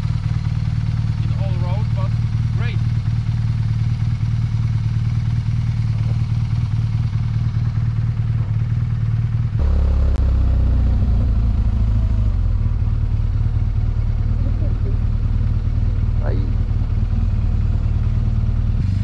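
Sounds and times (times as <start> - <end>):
motorcycle engine: 0.0 - 19.0.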